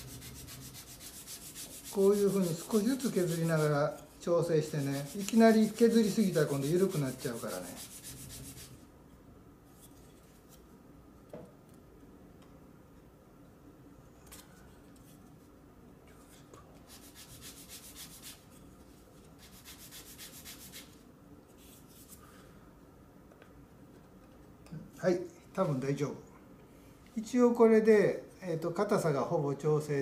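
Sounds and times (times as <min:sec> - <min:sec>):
sandpaper rubbing on wood: 0:00.0 - 0:03.8, 0:04.6 - 0:08.8, 0:16.9 - 0:18.4, 0:19.4 - 0:21.0.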